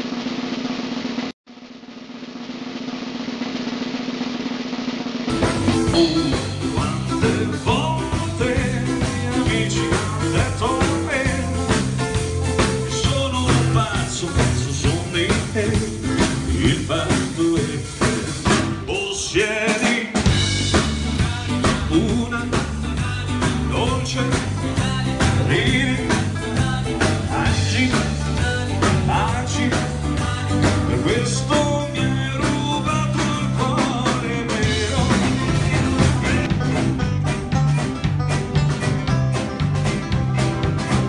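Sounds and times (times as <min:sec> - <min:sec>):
drum kit: 0:00.0 - 0:41.0
banjo: 0:05.3 - 0:18.6, 0:20.3 - 0:41.0
acoustic guitars: 0:05.3 - 0:19.0, 0:20.3 - 0:41.0
bass: 0:05.3 - 0:19.5, 0:20.2 - 0:41.0
country band playing live: 0:05.3 - 0:41.0
man singing: 0:05.4 - 0:37.2.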